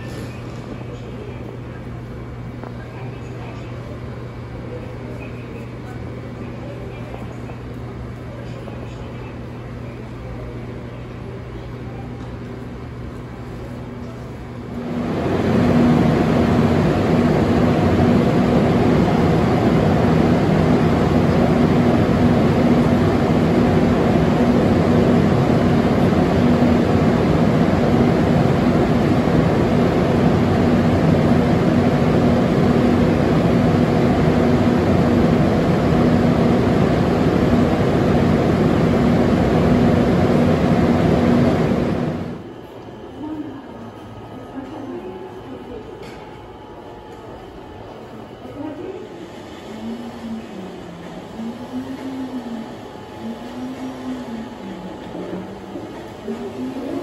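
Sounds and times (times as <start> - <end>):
mechanical drone with low hum: 0.0 - 57.0.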